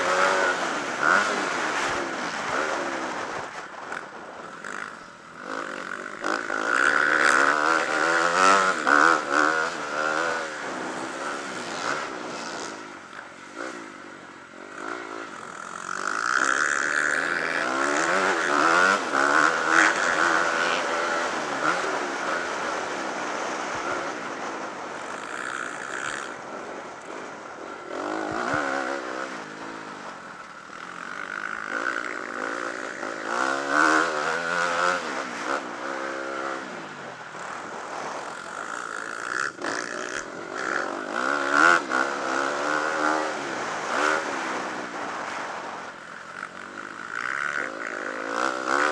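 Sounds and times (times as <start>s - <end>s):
motocross bike engine revving: 0.0s - 48.9s.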